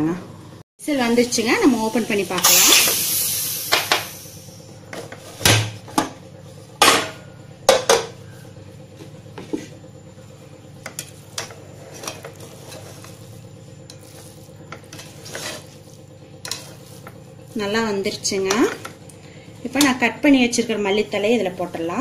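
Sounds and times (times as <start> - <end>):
spoon stirring rice in pot: 10.8 - 19.0.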